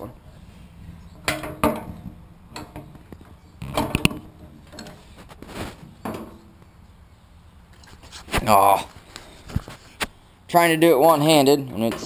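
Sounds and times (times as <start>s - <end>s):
wheelbarrow frame clicks and knocks: 1.2s - 5.0s, 5.8s - 6.6s.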